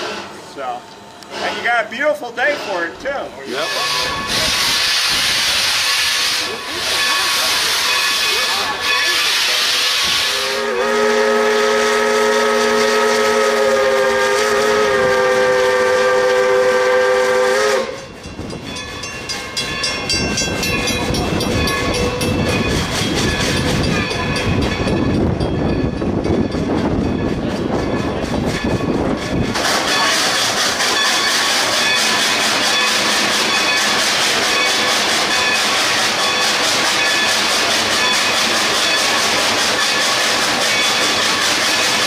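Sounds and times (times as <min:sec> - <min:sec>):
rolling rail noise: 0:00.0 - 0:42.0
steam locomotive chuffing: 0:00.0 - 0:42.0
steam whistle blast: 0:03.6 - 0:06.6, 0:09.3 - 0:18.1.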